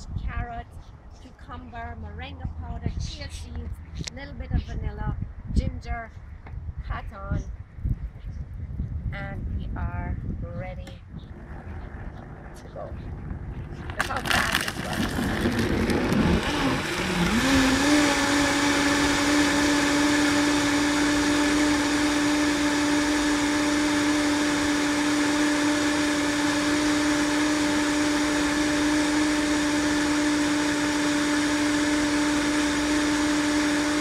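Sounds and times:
blender motor blending: 0:13.9 - 0:34.0.

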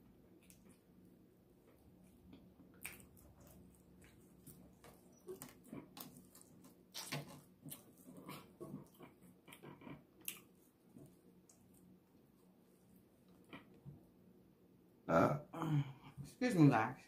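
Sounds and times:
chewing and wet mouth smacks: 0:00.3 - 0:00.9, 0:01.7 - 0:11.9.

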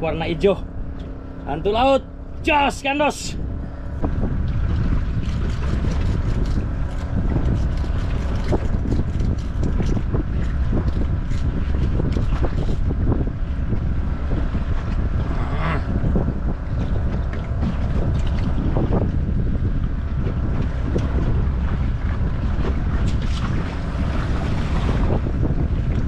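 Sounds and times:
boat engine low rumble: 0:00.0 - 0:26.0
wind buffeting microphone: 0:00.0 - 0:26.0.

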